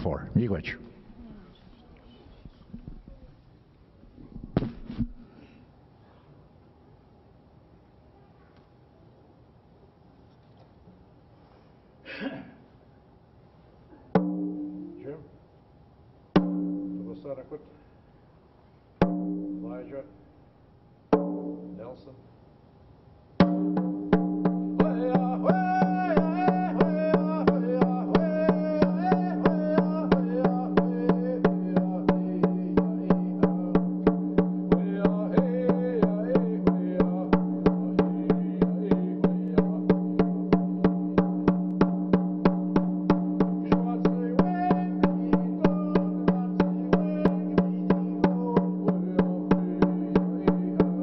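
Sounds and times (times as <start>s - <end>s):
man singing: 24.7s - 41.5s, 43.5s - 51.0s.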